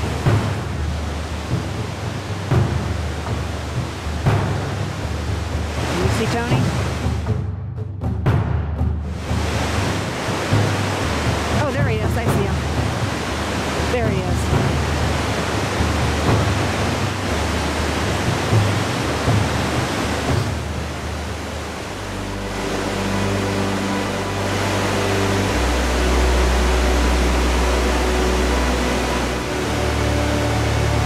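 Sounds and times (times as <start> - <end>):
river whitewater roaring: 0.0 - 7.3, 9.1 - 31.0
low drone music: 0.0 - 31.0.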